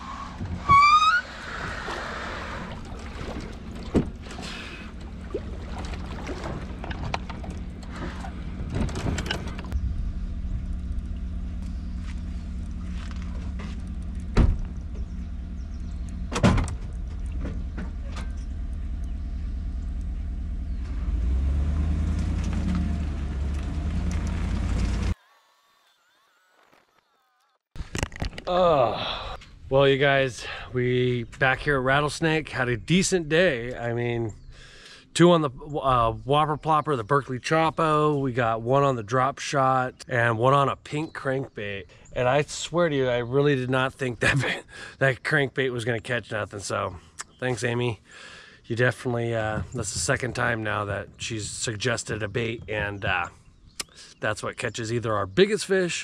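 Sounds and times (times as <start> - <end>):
kayak hull squeal: 0.0 - 9.1, 25.0 - 27.6
plastic kayak dragged: 0.0 - 9.8
truck doors shutting: 0.1 - 5.2, 5.9 - 9.8, 12.8 - 25.2
pickup truck engine running: 3.4 - 25.2
knocks and thuds: 14.3 - 14.8.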